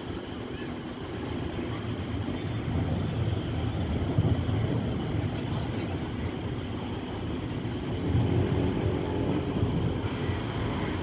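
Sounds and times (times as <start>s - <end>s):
rain: 0.0s - 11.0s
wind: 0.0s - 11.0s.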